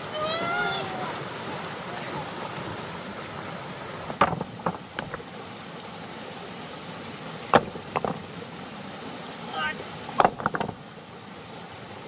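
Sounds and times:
steady background noise: 0:04.0 - 0:05.4
sharp knocks: 0:04.1 - 0:05.3, 0:07.5 - 0:08.2, 0:10.2 - 0:10.8.

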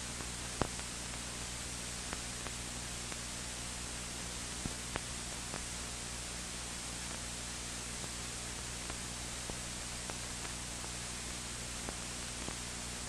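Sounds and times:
old film soundtrack hiss: 0:00.0 - 0:13.0
faint clicks: 0:00.6 - 0:00.9, 0:04.6 - 0:05.7.

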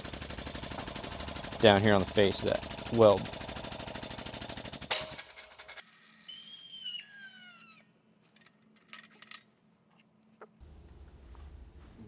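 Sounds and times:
squeal falling in pitch: 0:06.0 - 0:07.9.

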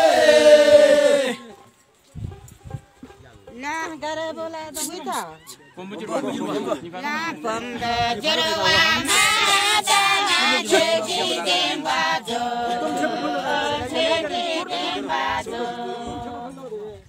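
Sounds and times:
group singing unaccompanied: 0:00.0 - 0:01.6, 0:06.2 - 0:17.0.

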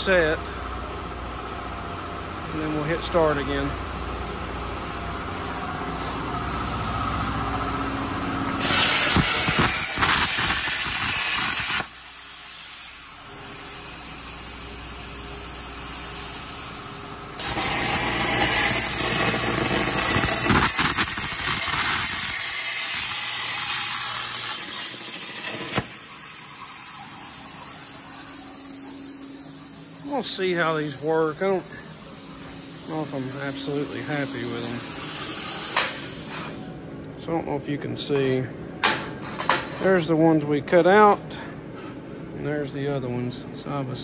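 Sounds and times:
plasma cutter hissing: 0:08.5 - 0:36.7.

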